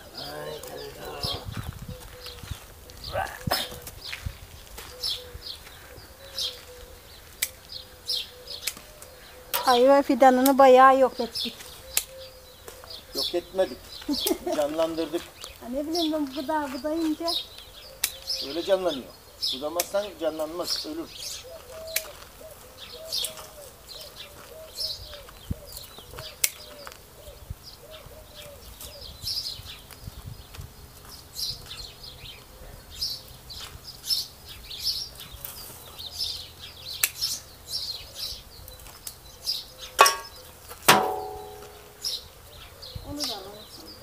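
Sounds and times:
small birds chirping: 0:00.0 - 0:44.0
loud ringing clang: 0:40.9 - 0:42.1.

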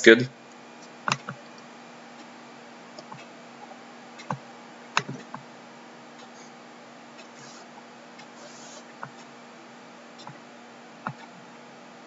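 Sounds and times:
faint steady hum: 0:00.0 - 0:12.0
computer mouse clicks: 0:01.1 - 0:01.4.

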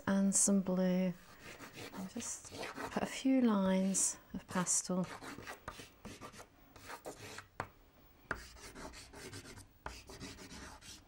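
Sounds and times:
pastel scraping on paper: 0:01.4 - 0:03.0, 0:05.0 - 0:07.5, 0:08.3 - 0:11.0.

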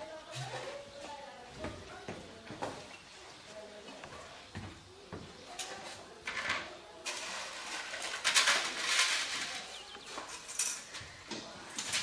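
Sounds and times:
paper and plastic plates rustling: 0:05.4 - 0:12.0.

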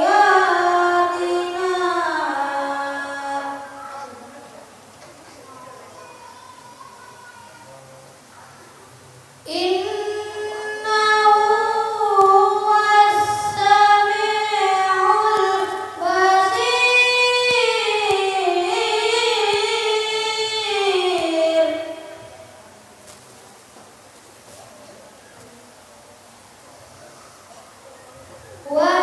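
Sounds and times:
child reciting melodically: 0:00.0 - 0:04.3, 0:05.4 - 0:07.8, 0:09.5 - 0:22.6, 0:28.5 - 0:29.0.

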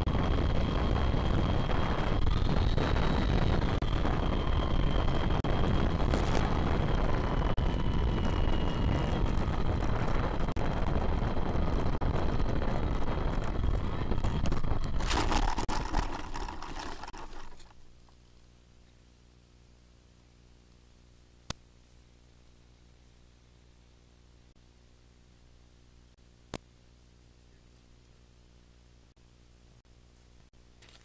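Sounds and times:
wind noise: 0:00.0 - 0:17.8
drone motors and propellers: 0:00.0 - 0:17.9
faint hum: 0:00.0 - 0:31.0.

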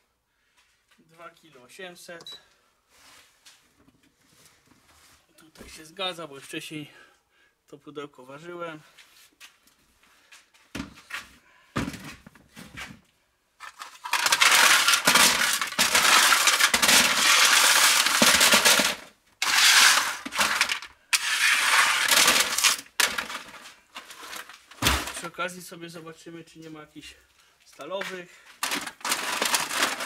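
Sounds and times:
aluminium cans clattering: 0:13.6 - 0:25.3, 0:28.6 - 0:30.0.

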